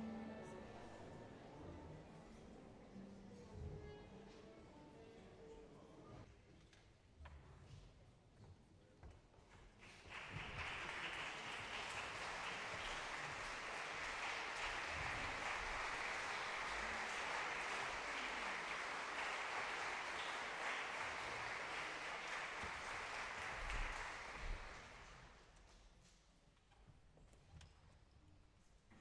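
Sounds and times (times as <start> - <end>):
audience applauding: 9.8 - 25.4.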